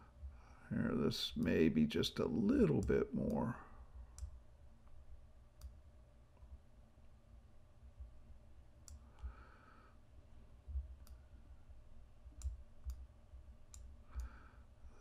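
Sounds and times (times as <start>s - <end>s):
quiet room hum: 0.0s - 15.0s
computer mouse clicking: 8.8s - 9.4s, 11.0s - 11.2s, 12.4s - 13.1s, 13.7s - 14.4s.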